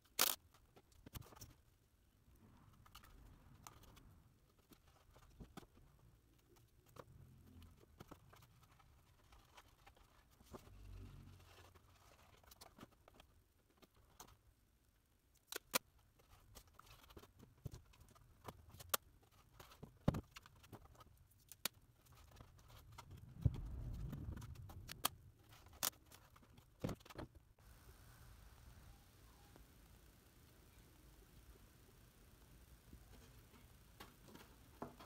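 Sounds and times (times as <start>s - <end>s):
low rumble of handling noise: 22.4s - 26.6s.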